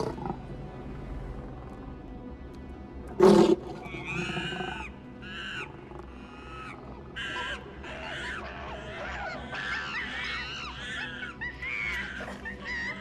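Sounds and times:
chimpanzees hooting: 3.4s - 13.0s.

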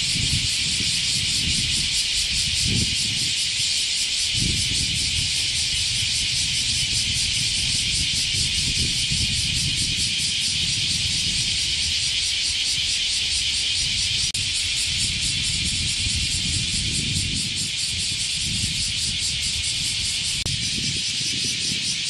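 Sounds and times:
cicadas chorus drone: 0.0s - 22.0s.

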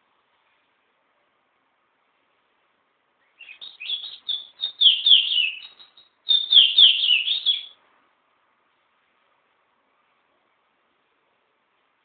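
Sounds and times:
songbird chirping: 3.1s - 7.8s.

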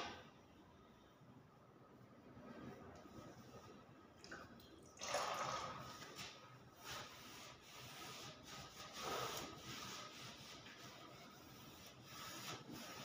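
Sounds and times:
cloth wiping wood: 5.8s - 13.0s.

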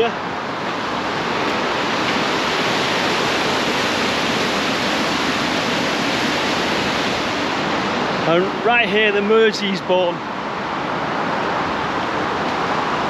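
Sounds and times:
water rushing over a weir: 0.0s - 13.0s.

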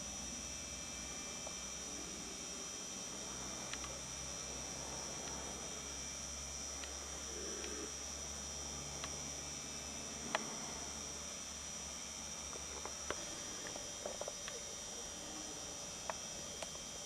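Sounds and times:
high-pitched whine: 0.0s - 17.0s
faint ticks: 3.7s - 4.0s, 6.8s - 7.9s, 10.2s - 10.6s.

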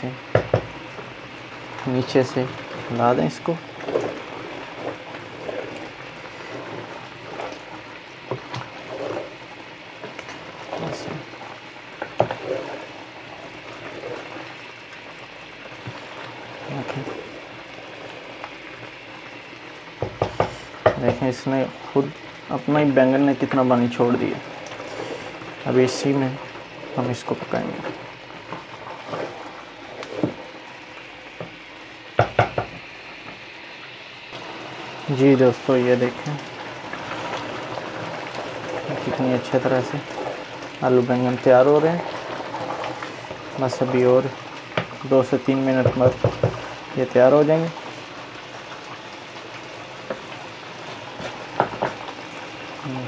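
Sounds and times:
vegetables sizzling in a pot: 0.0s - 53.0s
wooden spatula scraping a pot: 1.0s - 14.7s, 15.7s - 18.2s, 23.4s - 30.5s, 34.4s - 48.1s
spoon knocking against pot: 32.2s - 32.8s.

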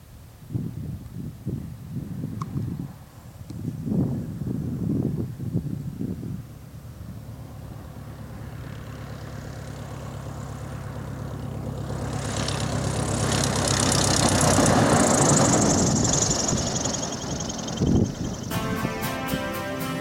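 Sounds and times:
biplane engine and propeller: 6.5s - 18.5s.

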